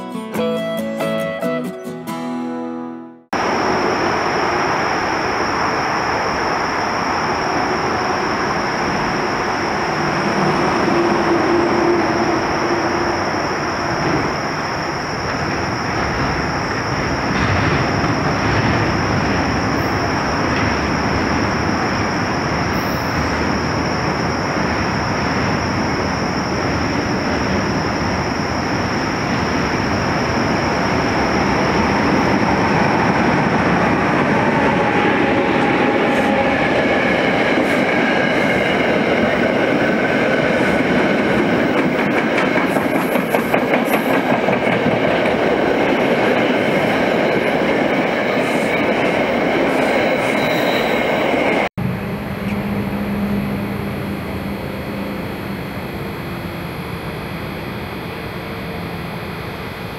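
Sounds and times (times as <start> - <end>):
train wheels rushing on rail: 3.4 - 54.2
wheels clicking on track: 35.6 - 50.6
high whining tones: 49.8 - 59.9.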